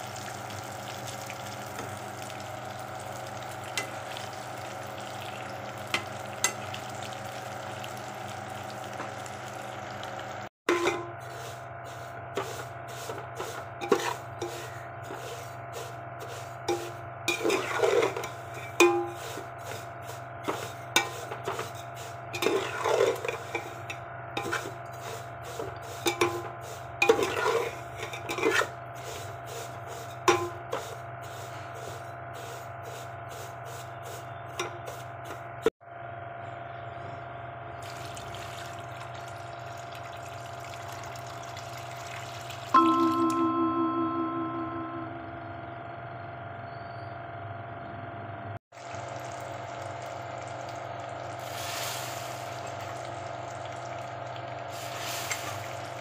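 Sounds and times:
spatula scraping metal pot: 0:10.7 - 0:32.0
steady hum: 0:42.8 - 0:46.6.

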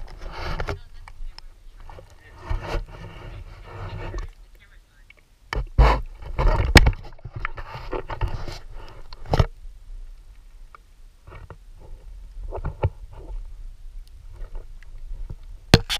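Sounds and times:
water sloshing and splashing: 0:00.0 - 0:09.6.

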